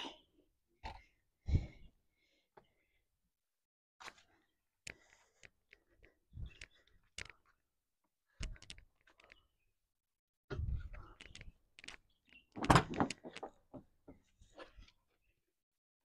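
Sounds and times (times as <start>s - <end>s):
knocks thuds and rattles: 12.6s - 13.8s.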